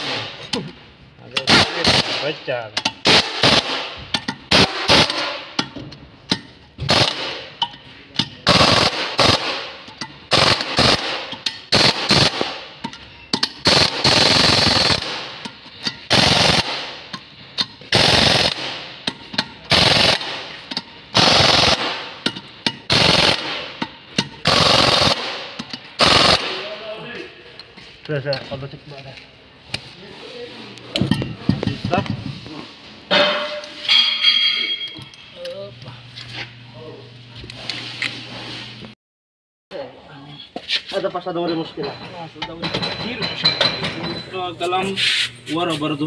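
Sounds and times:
pneumatic impact wrench rattling: 1.4s - 26.4s.

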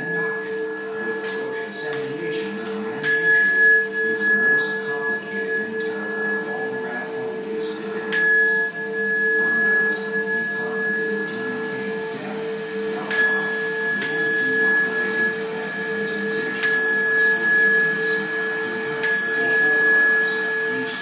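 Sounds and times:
steady ringing drone: 0.0s - 21.0s
small metal bells struck: 3.0s - 7.2s, 8.1s - 12.3s, 13.0s - 21.0s.

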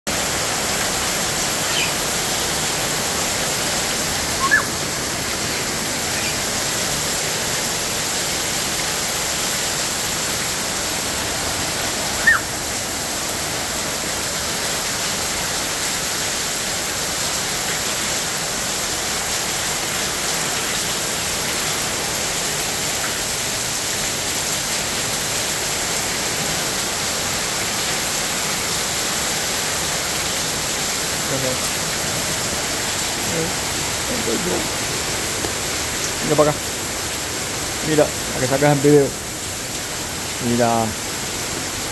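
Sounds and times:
heavy rain pouring on roofs: 0.1s - 41.9s
water running off roof: 0.1s - 41.9s
bird chirps: 1.6s - 2.6s, 4.4s - 4.8s, 5.4s - 6.4s, 12.2s - 12.5s.

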